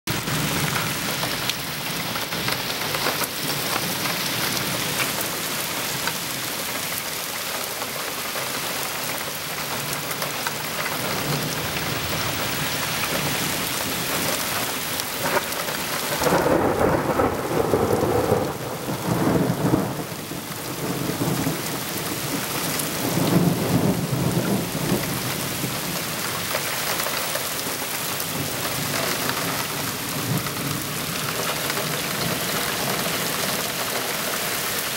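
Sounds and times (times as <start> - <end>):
steady rain falling: 0.1 - 34.9
thunder rumbling: 10.5 - 34.0.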